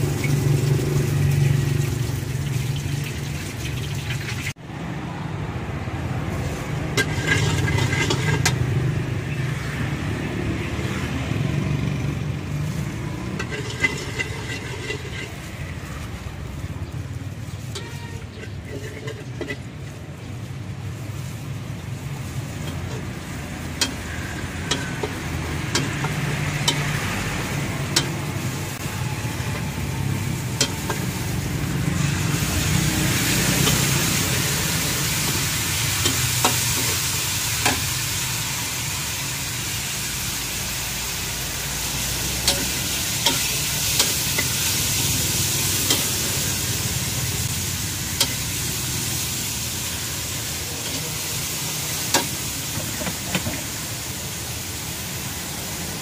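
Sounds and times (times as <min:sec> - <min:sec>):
food sizzling: 0:00.0 - 0:04.7, 0:05.8 - 0:56.0
metal spatula scraping a wok: 0:06.3 - 0:09.8, 0:12.6 - 0:53.8.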